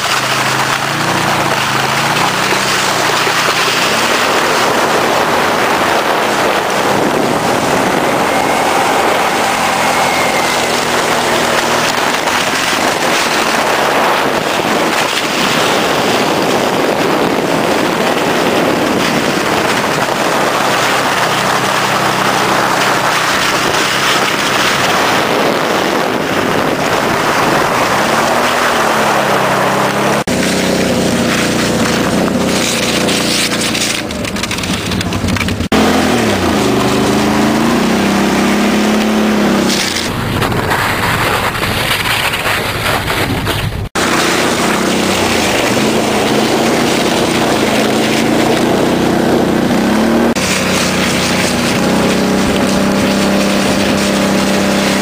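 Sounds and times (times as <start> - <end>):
scraping over ice: 0.0 - 35.8, 39.6 - 55.0
engine revving: 0.0 - 55.0
wind rushing on microphone: 0.0 - 55.0.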